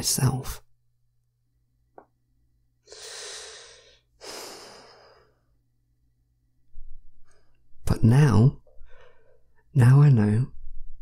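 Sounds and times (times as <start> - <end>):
man breathing heavily: 2.8 - 5.6.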